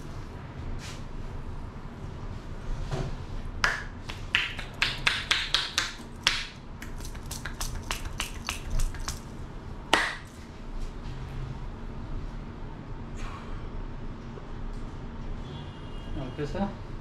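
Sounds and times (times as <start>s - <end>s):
palms tapping scalp: 3.6s - 9.3s.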